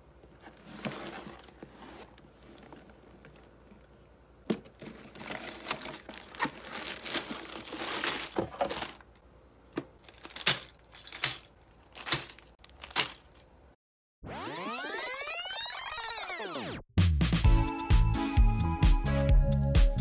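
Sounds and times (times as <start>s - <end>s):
cardboard box handled: 0.3s - 3.5s
plastic bags crinkling: 4.7s - 9.2s, 10.0s - 13.4s.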